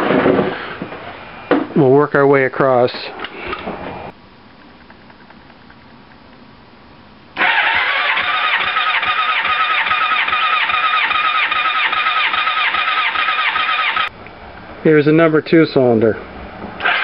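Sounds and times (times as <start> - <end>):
electric starter cranking engine: 7.4 - 14.1, 16.8 - 17.0.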